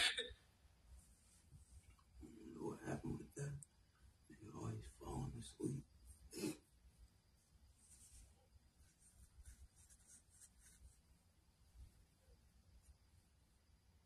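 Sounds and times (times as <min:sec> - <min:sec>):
faint soft rustling: 0:00.8 - 0:02.2, 0:07.3 - 0:13.3.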